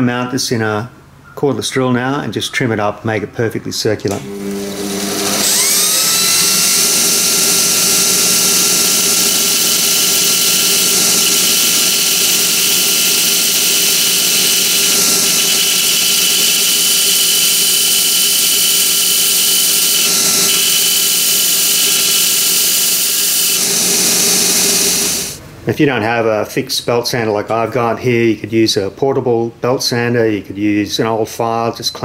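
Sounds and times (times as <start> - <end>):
steady motor whine: 4.1 - 25.4
belt sander sanding cork: 4.5 - 25.4.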